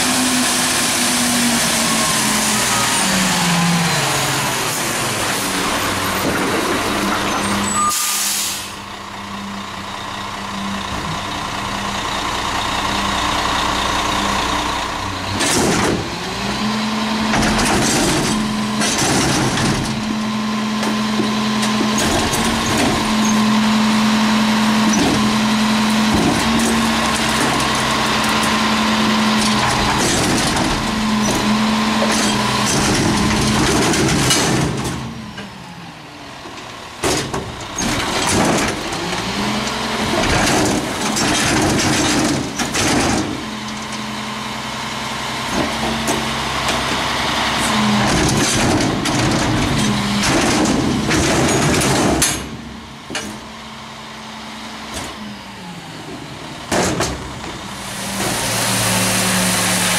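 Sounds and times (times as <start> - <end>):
garbage truck engine: 0.0 - 59.9
air brakes hissing: 7.8 - 8.8
short air hisses: 7.9 - 8.8.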